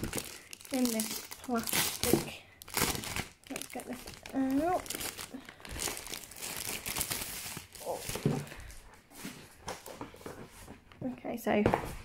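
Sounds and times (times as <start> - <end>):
plastic wrapping crinkling and tearing: 0.0 - 8.8.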